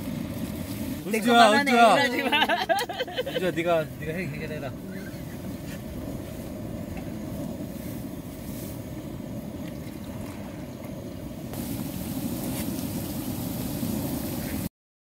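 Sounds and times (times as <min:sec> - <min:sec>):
broth boiling on gas stove: 0:00.0 - 0:14.7
meat sizzling in a frying pan: 0:11.6 - 0:14.7.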